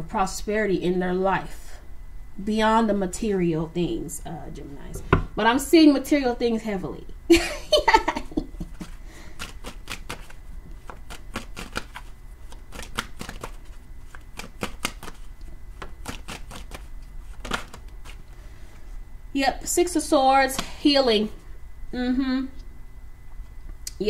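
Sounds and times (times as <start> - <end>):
cards being shuffled: 8.7 - 18.3.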